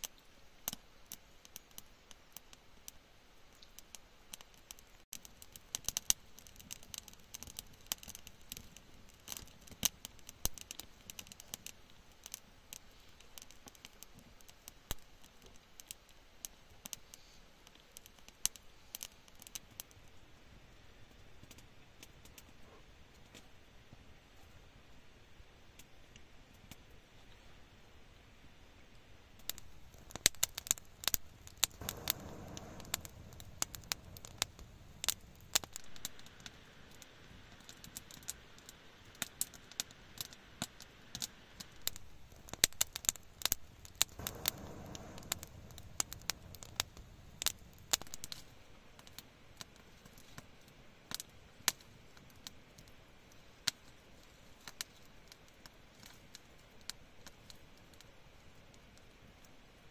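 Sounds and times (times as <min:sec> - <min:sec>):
wood fire crackling and popping: 0:00.0 - 0:25.0, 0:25.7 - 0:27.4, 0:28.8 - 0:59.9
soft rushes of sound: 0:31.7 - 0:36.4, 0:44.0 - 0:48.7.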